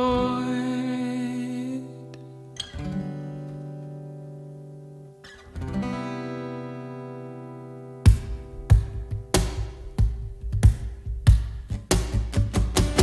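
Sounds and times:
acoustic guitar chords strummed: 0.0s - 13.0s
cajon hit: 8.1s - 13.0s.

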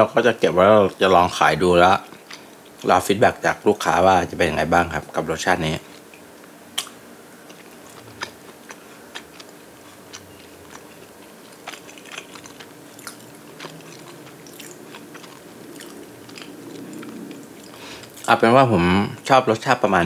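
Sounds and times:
person chewing sandwich: 2.0s - 2.9s, 6.8s - 18.3s
small crunchy clicks: 5.9s - 18.4s.

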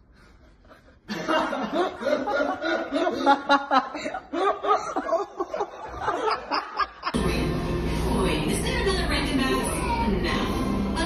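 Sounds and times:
person giggling: 0.5s - 7.2s.

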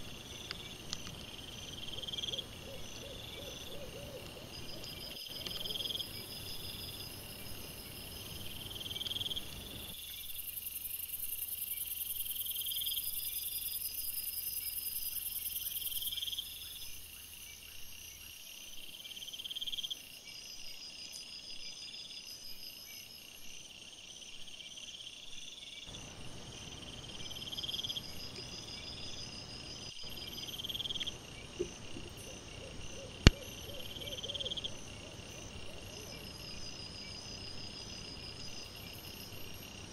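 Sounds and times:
insect trill: 0.0s - 39.9s
insects chirping: 0.0s - 39.9s.

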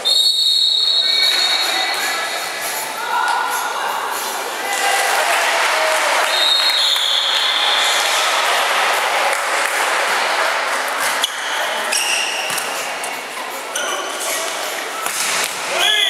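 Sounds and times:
referee's whistle: 0.0s - 2.2s, 6.3s - 8.0s
crowd noise: 0.0s - 16.0s
shoes squeaking on court floor: 11.2s - 15.6s.

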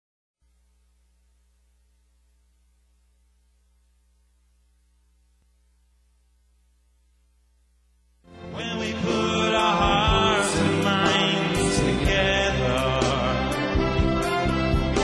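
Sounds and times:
faint electrical hum: 0.4s - 8.3s
loud music: 8.3s - 15.0s.

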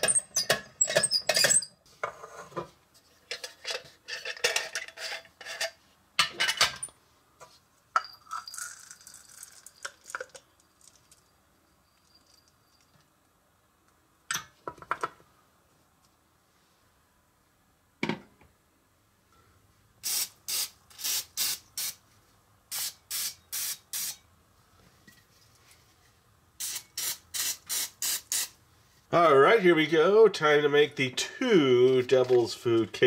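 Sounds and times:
chopped nuts poured into cup: 8.2s - 11.2s.

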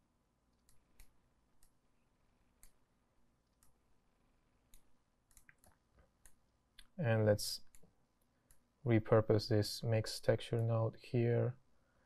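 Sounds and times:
computer mouse clicks: 0.5s - 1.8s, 2.6s - 2.8s, 3.4s - 3.8s, 4.7s - 7.0s, 7.6s - 8.6s.

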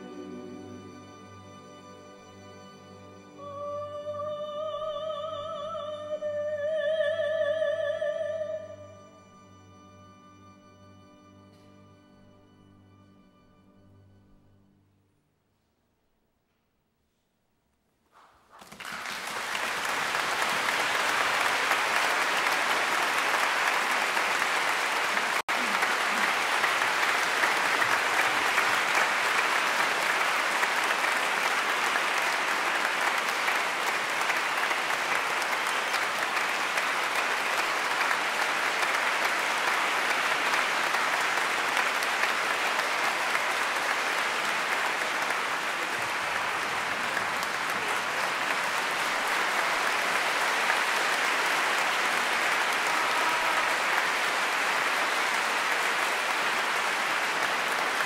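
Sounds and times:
audience applauding: 18.5s - 58.0s.

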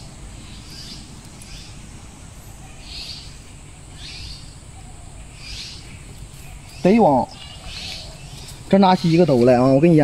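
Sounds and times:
bird calling: 2.4s - 10.0s.

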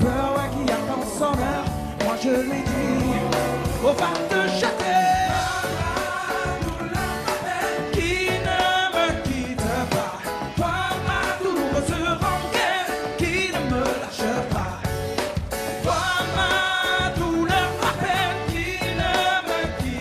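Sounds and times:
voices singing: 0.0s - 15.2s
drum kit beat: 0.0s - 20.0s
live band playing pop-soul: 0.0s - 20.0s.

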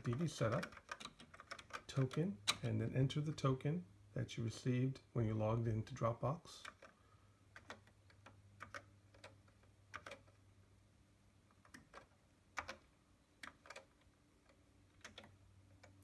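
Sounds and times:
keyboard keys clicking: 0.0s - 2.8s, 6.6s - 10.4s, 11.5s - 16.0s
low steady hum: 0.0s - 16.0s.

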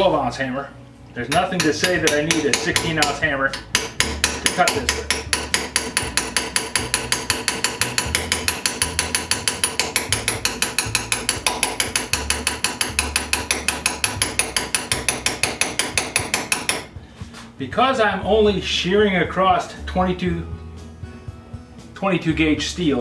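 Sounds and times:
sheet steel ringing: 1.2s - 16.9s
hammer striking chisel: 1.2s - 17.0s.

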